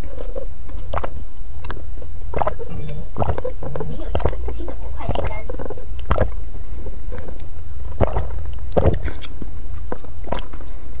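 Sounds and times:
low rumble: 0.0 - 11.0
slurping through a straw: 2.3 - 7.4, 8.0 - 9.4.

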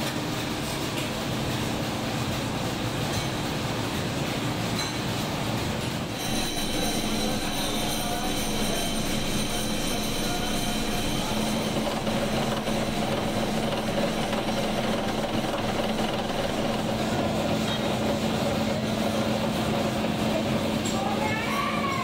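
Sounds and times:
factory machinery hum: 0.0 - 22.0
mechanical noise: 6.1 - 19.1.

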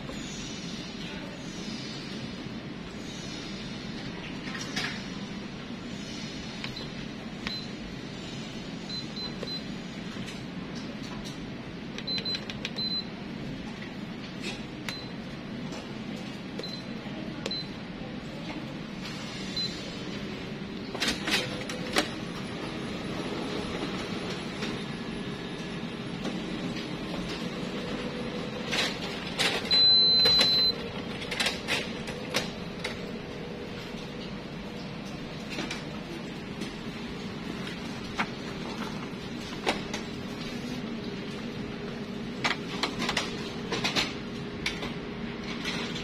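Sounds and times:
copier humming: 0.0 - 46.0
high beep: 29.7 - 30.8.

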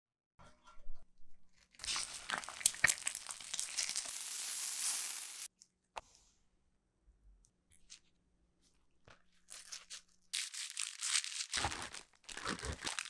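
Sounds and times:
bacon sizzling on a griddle: 1.8 - 5.5.

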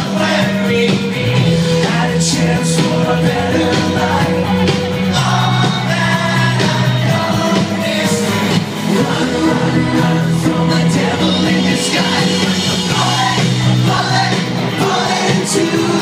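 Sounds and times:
live rock band playing: 0.0 - 16.0
person singing lead vocals: 0.0 - 16.0.

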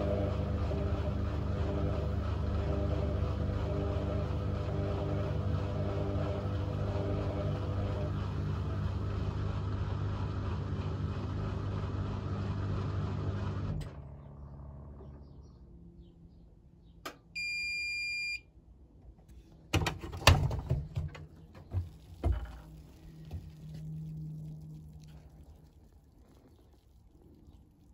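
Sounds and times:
washing machine running: 0.0 - 15.0, 19.7 - 26.8
long electronic beep: 17.4 - 18.4.

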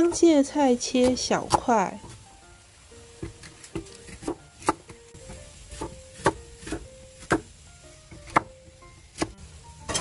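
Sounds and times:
soft background music: 0.0 - 10.0
knife chopping on wooden board: 3.2 - 7.5, 8.1 - 8.5.

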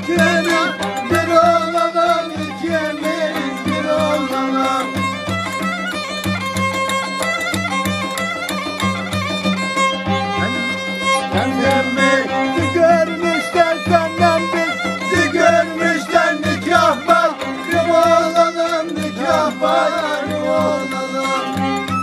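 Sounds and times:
man singing: 0.0 - 5.0, 11.3 - 21.6
violin playing folk dance tune: 0.0 - 22.0.

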